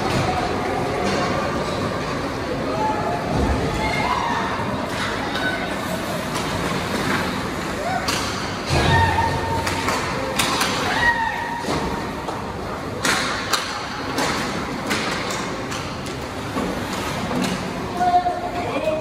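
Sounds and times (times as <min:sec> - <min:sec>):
puck and sticks hitting boards: 0:06.3 - 0:18.1.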